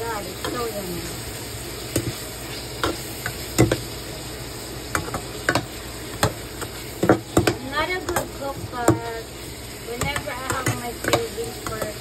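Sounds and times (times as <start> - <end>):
meat frying sizzle: 0.0 - 12.0
spatula knocking against pan: 4.9 - 9.1, 10.0 - 12.0.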